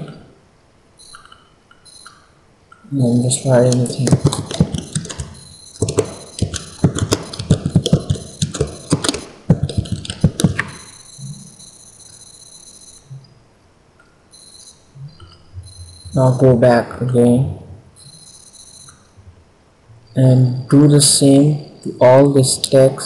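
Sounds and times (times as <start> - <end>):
faint high-pitched whine: 0.0 - 23.0
keyboard typing: 3.0 - 13.3.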